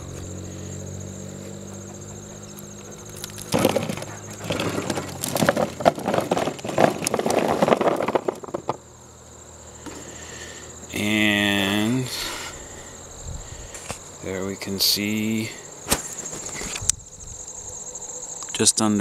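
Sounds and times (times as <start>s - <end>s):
potatoes tumbling into plastic tub: 2.8s - 9.0s.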